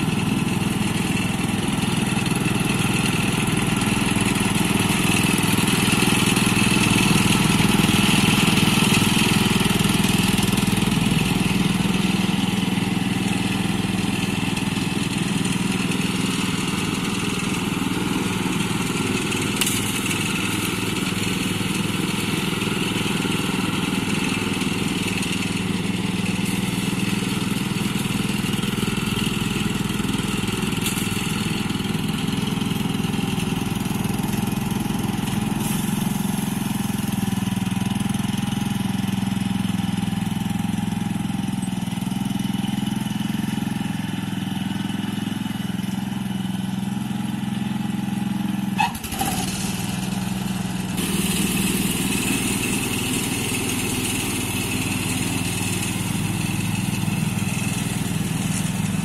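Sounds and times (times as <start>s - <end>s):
riding mower engine running: 0.0s - 59.0s.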